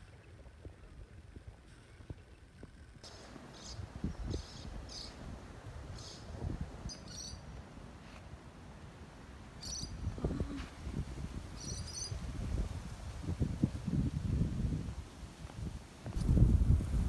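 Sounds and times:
wind rumble on microphone: 0.0s - 7.5s, 9.6s - 17.0s.

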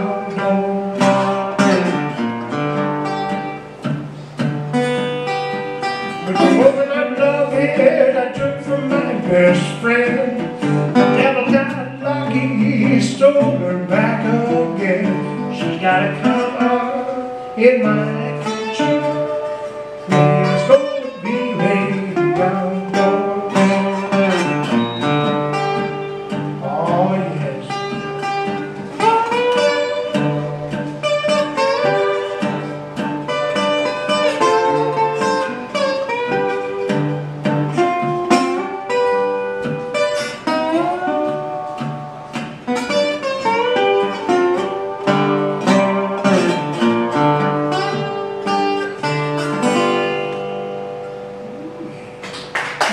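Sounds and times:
man singing: 0.0s - 1.4s, 6.0s - 24.3s, 26.6s - 28.1s
resonator guitar blues fingerstyle: 0.0s - 52.9s.

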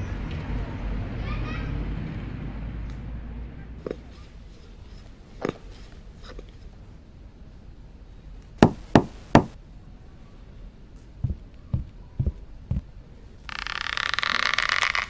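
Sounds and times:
footsteps on wooden floor: 11.2s - 12.9s.

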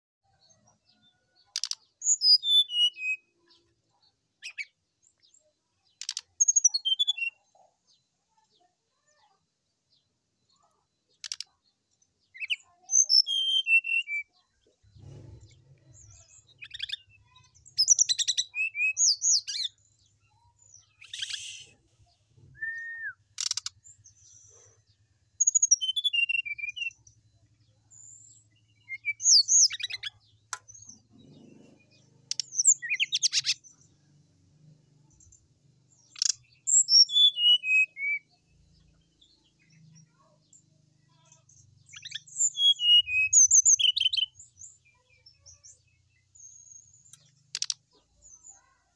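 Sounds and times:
bird singing whistles and trills: 2.0s - 3.5s, 6.0s - 7.5s, 12.3s - 14.4s, 16.1s - 19.8s, 20.8s - 24.1s, 25.4s - 27.0s, 28.4s - 30.2s, 36.0s - 38.4s, 41.9s - 44.4s.

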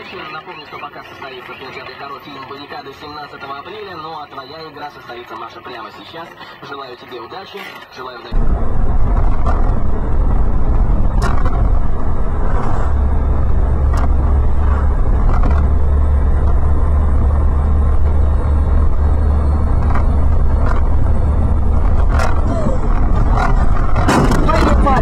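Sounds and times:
car driving on wet road: 8.4s - 25.0s.

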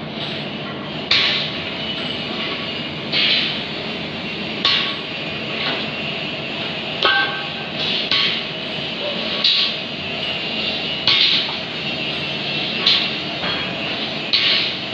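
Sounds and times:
industrial machinery din: 0.0s - 14.9s
sharp metallic clanks: 1.1s - 3.6s, 4.6s - 5.9s, 7.0s - 14.9s.

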